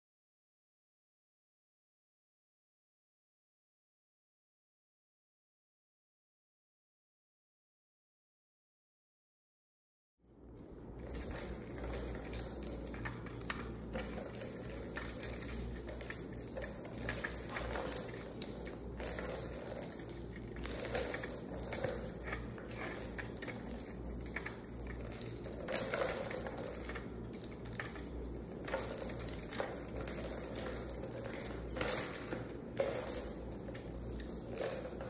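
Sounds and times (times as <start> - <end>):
steady low hum: 10.5 - 35.0
plastic balls rolling and rattling: 10.6 - 35.0.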